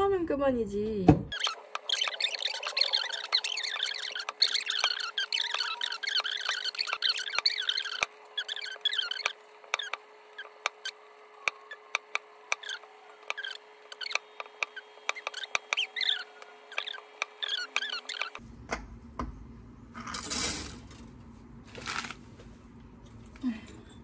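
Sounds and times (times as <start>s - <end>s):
high wavering squeaks: 1.3s - 18.4s.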